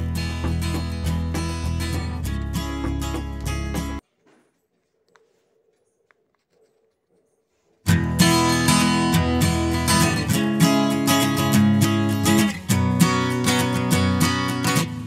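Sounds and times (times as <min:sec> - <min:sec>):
strummed acoustic guitar music: 0:00.0 - 0:04.0, 0:07.9 - 0:15.0.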